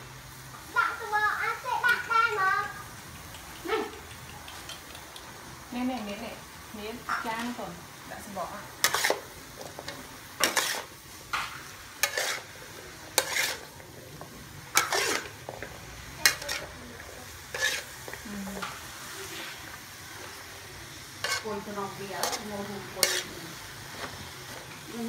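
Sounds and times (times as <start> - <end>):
food sizzling: 0.0 - 25.0
spatula scraping metal wok: 8.7 - 25.0.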